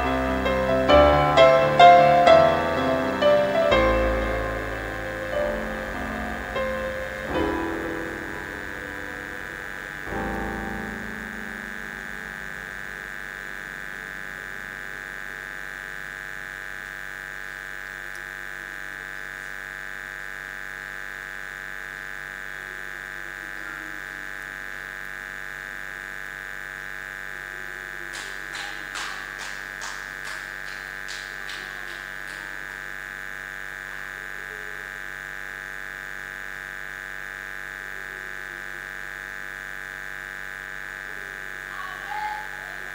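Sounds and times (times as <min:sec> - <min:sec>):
keyboard chord: 0:00.0 - 0:16.0
electrical hum and buzz: 0:00.0 - 0:42.9.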